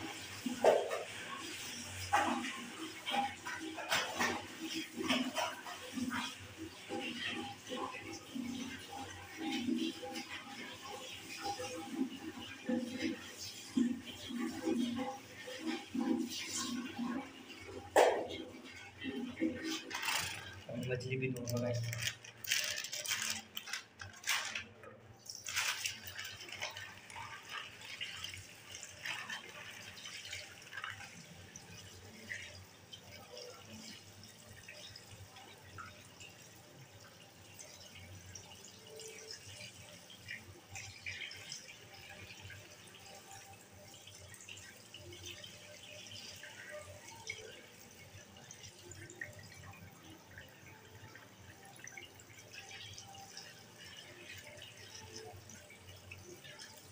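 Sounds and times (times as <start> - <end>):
tap water splashing in sink: 0.2 - 24.7.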